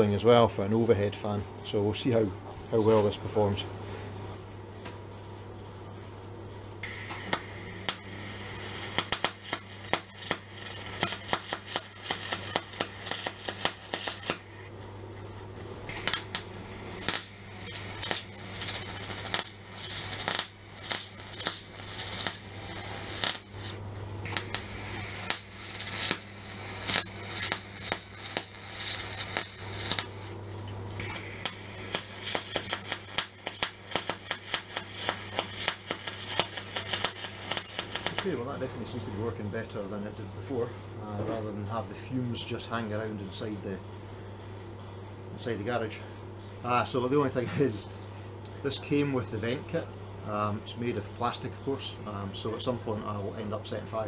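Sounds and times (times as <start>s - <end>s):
steady low hum: 0.0s - 54.0s
welding arc crackling: 6.8s - 38.6s.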